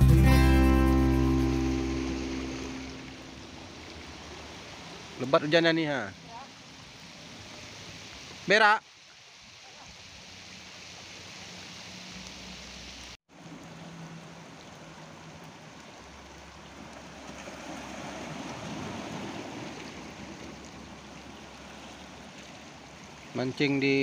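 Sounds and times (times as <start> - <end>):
heavy rain on water: 1.2 - 24.0
small waves washing on rocks: 14.3 - 24.0.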